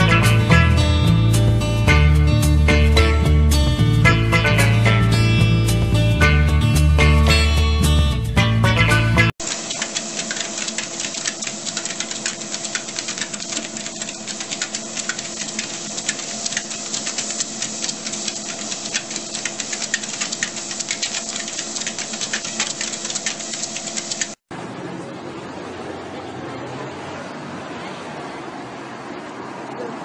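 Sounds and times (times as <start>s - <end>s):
treadmill humming: 9.4s - 24.4s.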